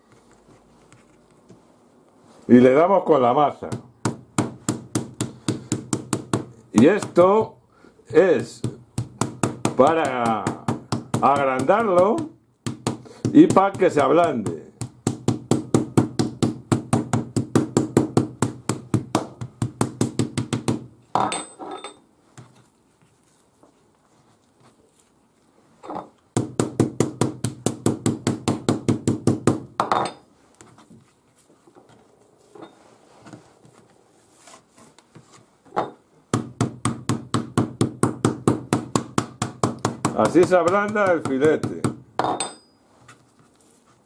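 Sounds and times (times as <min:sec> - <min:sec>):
mallet pounding meat on board: 0:08.4 - 0:20.9, 0:26.4 - 0:29.7, 0:36.4 - 0:42.0.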